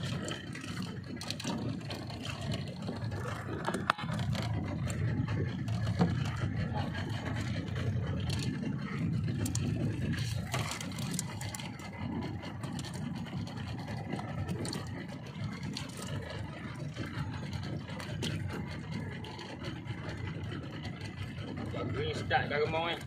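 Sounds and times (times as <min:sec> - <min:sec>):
boat engine idling: 0:00.0 - 0:23.0
fishing line and hooks clicking: 0:07.4 - 0:20.2.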